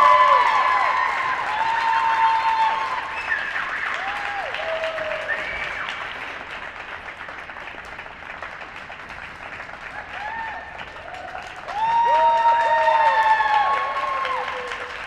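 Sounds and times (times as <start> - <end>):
shouted cheers: 0.0 - 6.1, 10.0 - 15.0
audience applauding: 0.0 - 15.0.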